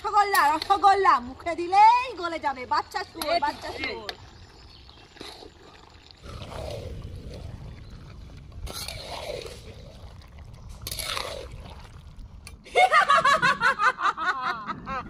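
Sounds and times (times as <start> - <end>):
woman speaking: 0.0 - 4.2
metal spatula scraping curry: 8.6 - 9.7, 10.7 - 11.4.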